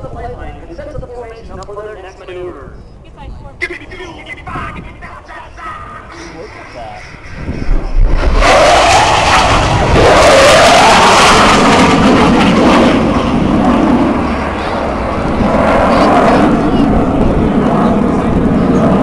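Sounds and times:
jet flying over: 0:00.0 - 0:19.0.

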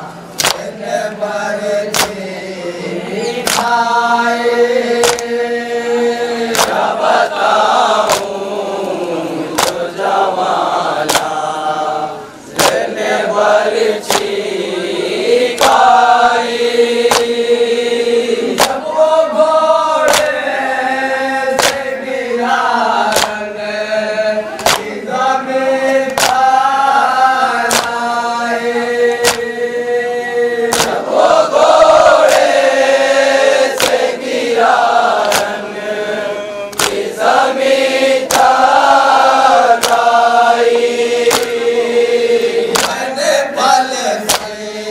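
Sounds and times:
men chanting together: 0:00.0 - 0:44.9
hand slaps on chest: 0:00.4 - 0:00.7, 0:01.9 - 0:02.2, 0:03.4 - 0:03.8, 0:05.0 - 0:05.3, 0:06.5 - 0:06.9, 0:08.0 - 0:08.3, 0:09.6 - 0:09.9, 0:11.0 - 0:11.3, 0:12.6 - 0:12.9, 0:14.0 - 0:14.3, 0:15.6 - 0:15.8, 0:17.1 - 0:17.4, 0:18.6 - 0:18.8, 0:20.0 - 0:20.4, 0:21.5 - 0:21.9, 0:23.1 - 0:23.4, 0:24.6 - 0:25.0, 0:25.9 - 0:26.5, 0:27.7 - 0:28.0, 0:29.2 - 0:29.5, 0:30.7 - 0:31.0, 0:32.2 - 0:32.5, 0:33.8 - 0:34.1, 0:35.2 - 0:35.6, 0:36.7 - 0:37.1, 0:38.2 - 0:38.6, 0:39.7 - 0:40.1, 0:41.2 - 0:41.7, 0:42.7 - 0:43.0, 0:44.3 - 0:44.6.

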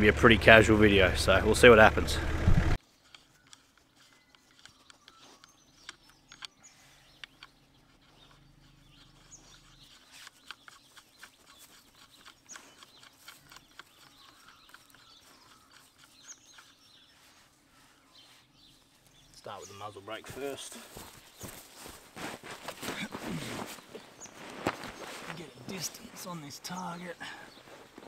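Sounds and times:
faint birds chirping: 0:00.0 - 0:28.0
small clicks: 0:03.0 - 0:08.4, 0:09.0 - 0:16.8.

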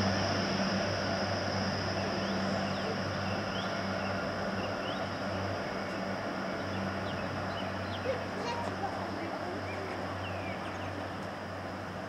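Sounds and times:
diesel train engine drone: 0:00.0 - 0:12.0
bird chirps: 0:05.8 - 0:08.3, 0:09.6 - 0:11.1.

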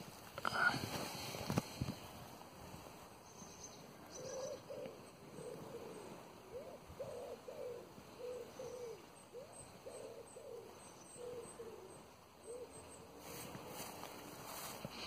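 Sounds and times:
bird cooing: 0:03.7 - 0:15.0.

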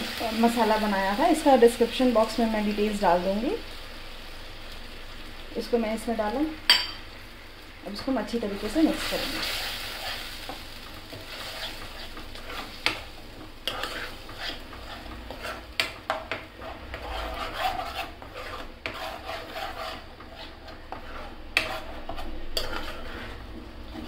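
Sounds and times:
ladle stirring and scraping pan: 0:07.9 - 0:24.0.

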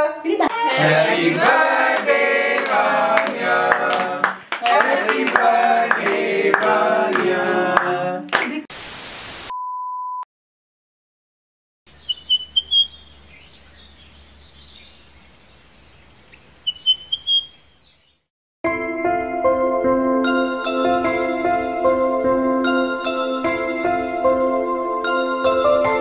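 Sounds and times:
group of people singing: 0:00.5 - 0:08.3
hand-clapping: 0:00.7 - 0:08.7
static hiss: 0:08.7 - 0:09.5
bird chirping: 0:11.9 - 0:18.3.

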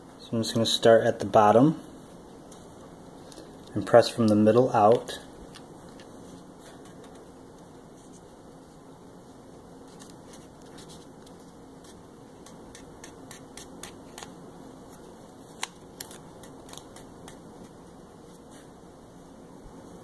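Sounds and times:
low room hum: 0:00.0 - 0:20.0
tape crinkling: 0:09.8 - 0:17.8.

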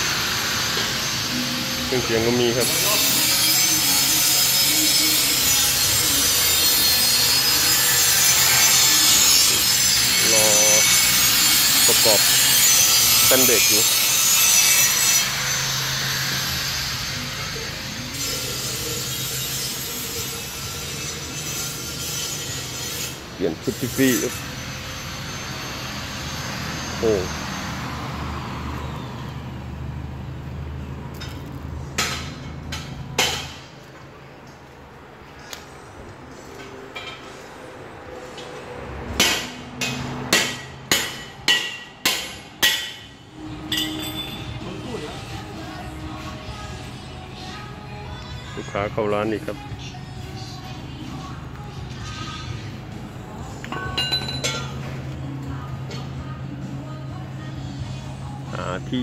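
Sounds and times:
angle grinder grinding steel: 0:00.0 - 0:28.1
hammer striking steel: 0:32.0 - 0:33.7, 0:39.1 - 0:44.6, 0:53.6 - 0:54.8.

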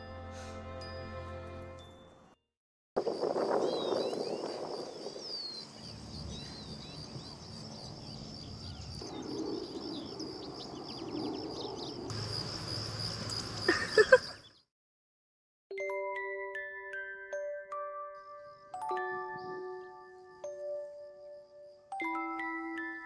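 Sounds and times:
bird chirps: 0:03.5 - 0:14.7
high-pitched insect drone: 0:07.8 - 0:14.4.

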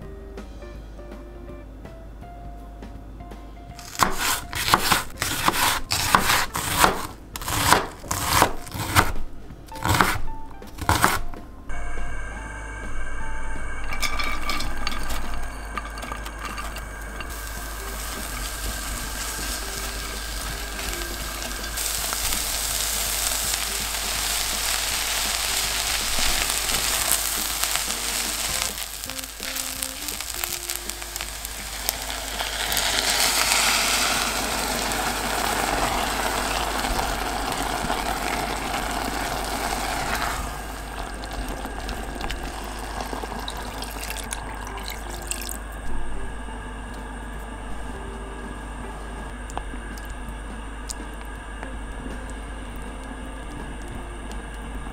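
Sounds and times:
food sizzling in a pot: 0:03.8 - 0:09.1, 0:10.9 - 0:45.8
spatula stirring: 0:03.8 - 0:09.1.

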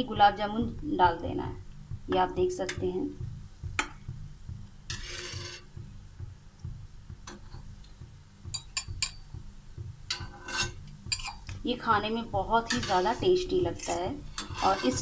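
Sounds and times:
spoon scraping a pan: 0:04.9 - 0:05.7, 0:10.1 - 0:11.6, 0:12.6 - 0:15.0.

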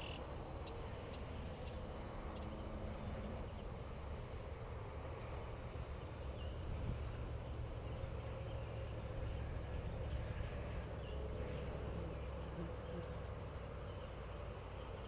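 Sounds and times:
faint hum: 0:00.0 - 0:15.0
wind rumbling on microphone: 0:05.6 - 0:08.2.

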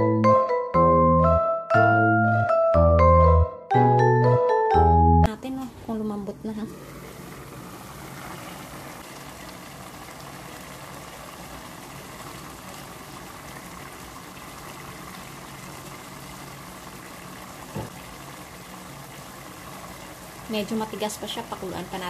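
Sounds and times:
pot bubbling: 0:06.0 - 0:22.0.

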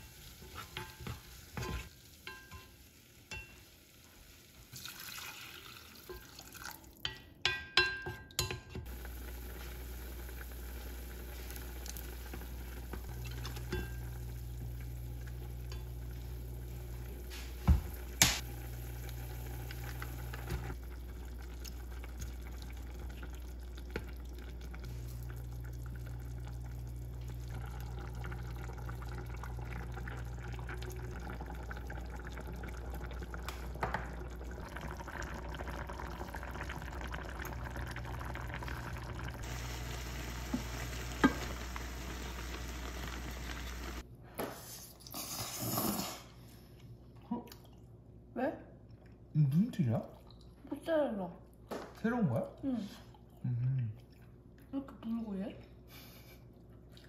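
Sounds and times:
soup bubbling and sizzling: 0:00.0 - 0:44.1.

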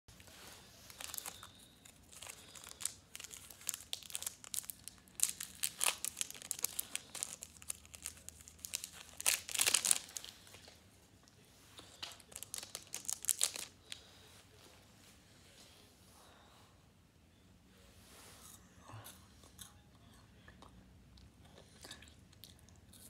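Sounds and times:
wrapper crinkling and tearing: 0:00.2 - 0:10.7, 0:11.9 - 0:14.0.

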